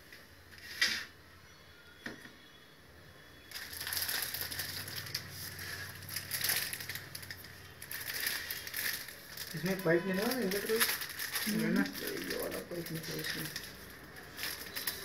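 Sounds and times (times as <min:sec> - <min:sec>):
plastic packaging crinkling: 0:03.5 - 0:15.0.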